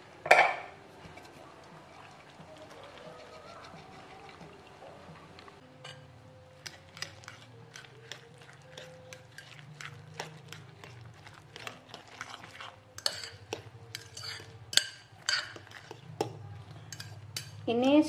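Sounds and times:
spoon stirring wet egg mix: 0.9 - 18.0.

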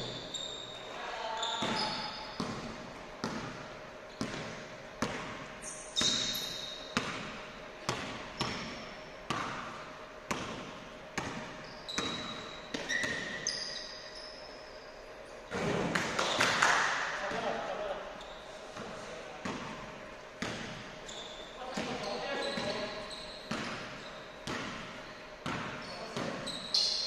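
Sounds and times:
sneaker squeaks: 0.0 - 16.5, 17.2 - 27.0
basketball bouncing on hardwood: 1.6 - 3.6, 4.2 - 5.4, 7.0 - 13.4, 20.4 - 20.8, 23.5 - 26.4.

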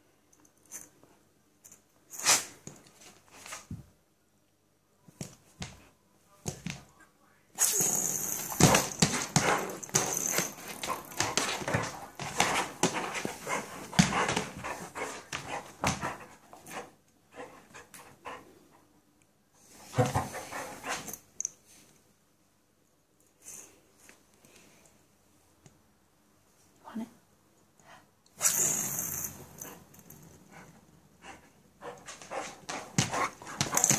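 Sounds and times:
clicks and scrabbling on floor: 8.1 - 16.2, 32.0 - 33.9.

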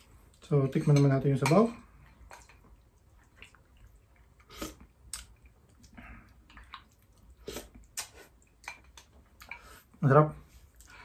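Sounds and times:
person sipping broth: 1.8 - 8.7
chewing: 1.8 - 9.9
mouth clicks and smacks: 2.4 - 9.6.

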